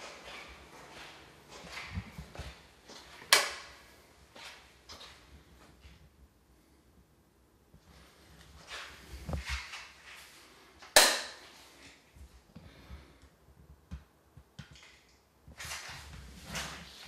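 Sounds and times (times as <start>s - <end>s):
soft rustles: 7.8s - 10.8s, 15.5s - 17.0s.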